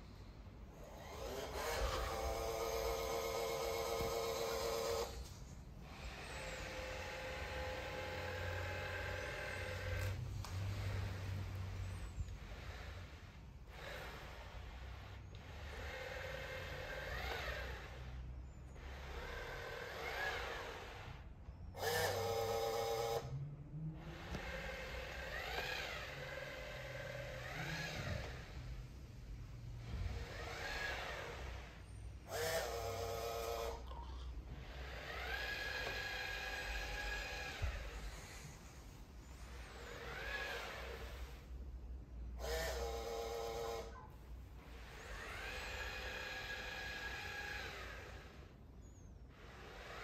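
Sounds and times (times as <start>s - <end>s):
robot mop motor whir: 0.0s - 50.0s.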